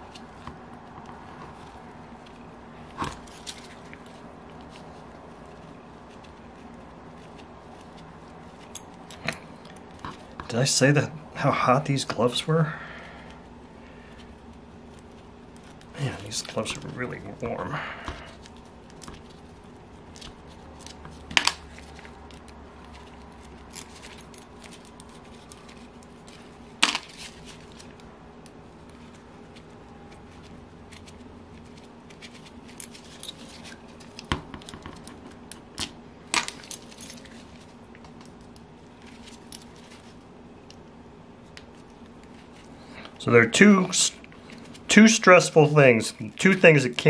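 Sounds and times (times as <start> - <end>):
metal tools and parts clinking: 36.4 - 37.5.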